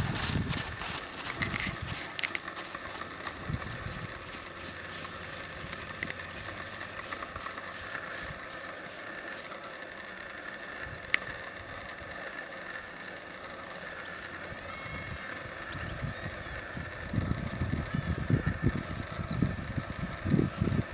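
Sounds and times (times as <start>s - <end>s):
hooves thudding on sand: 0.0s - 4.4s.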